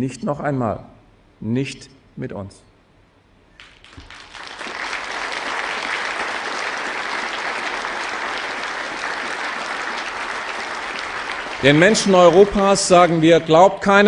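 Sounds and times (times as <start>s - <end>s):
crowd applause: 3.6s - 14.0s.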